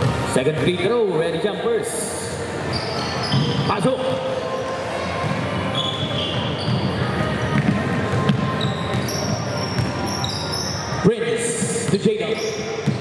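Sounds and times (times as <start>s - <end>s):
murmur of crowd voices: 0.0s - 13.0s
sneakers squeaking on court: 2.6s - 13.0s
basketball bouncing: 6.3s - 10.1s, 11.6s - 13.0s.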